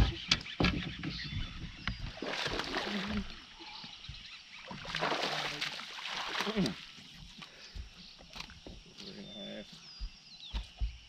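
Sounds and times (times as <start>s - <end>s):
fish splashing at surface: 4.8s - 6.9s.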